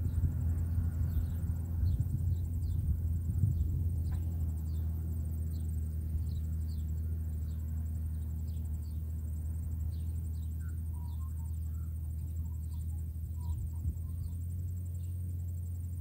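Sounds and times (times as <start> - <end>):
distant engine droning: 0.0 - 16.0
insect chirps: 0.0 - 16.0
bird notes: 3.6 - 15.3.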